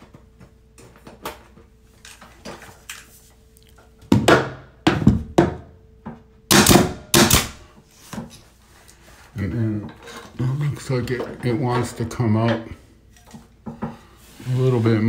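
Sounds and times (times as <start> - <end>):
nail gun shots with hiss: 6.5 - 7.7.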